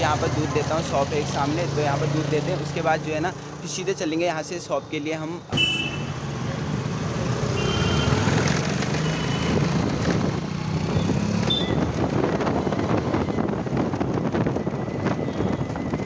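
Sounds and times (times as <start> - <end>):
engine and road rumble: 0.0 - 16.0
wind buffeting microphone: 9.5 - 16.0.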